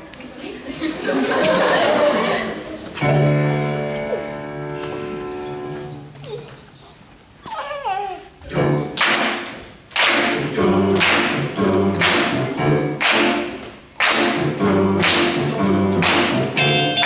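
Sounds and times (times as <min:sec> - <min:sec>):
youth choir singing: 0:10.2 - 0:12.9, 0:14.2 - 0:17.0
sharp struck hits ringing: 0:16.6 - 0:17.0.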